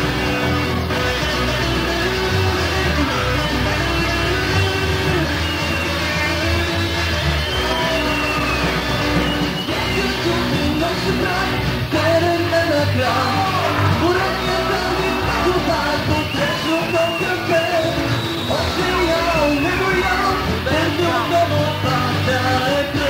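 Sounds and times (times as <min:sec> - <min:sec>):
bass guitar: 0:00.0 - 0:23.0
drums: 0:00.0 - 0:23.0
electric guitars: 0:00.0 - 0:23.0
man singing: 0:09.6 - 0:23.0.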